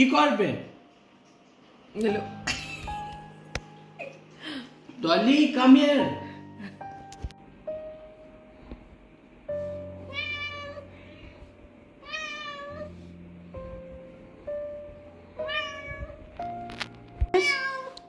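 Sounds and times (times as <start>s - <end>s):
cat meowing: 10.0s - 11.0s, 12.0s - 13.0s, 15.4s - 16.2s, 17.4s - 18.0s.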